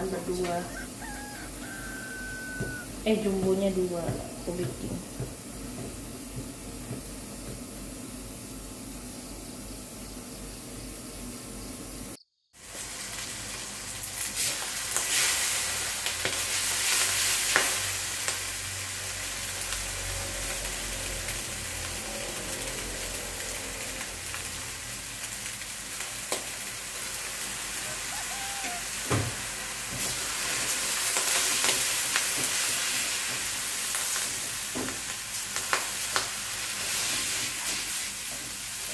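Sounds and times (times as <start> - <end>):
noodles sizzling in a wok: 0.0 - 3.3, 12.6 - 38.9.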